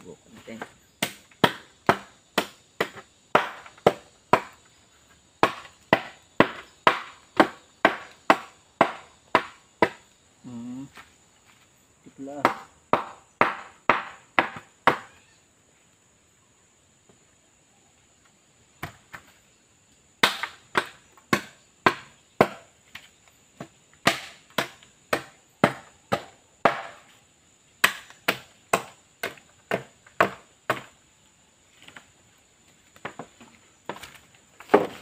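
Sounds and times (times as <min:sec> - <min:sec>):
blade chopping bamboo: 0:00.6 - 0:04.6, 0:05.4 - 0:10.0, 0:12.4 - 0:15.0, 0:20.2 - 0:22.6, 0:24.0 - 0:27.1, 0:27.8 - 0:30.9, 0:34.6 - 0:35.0.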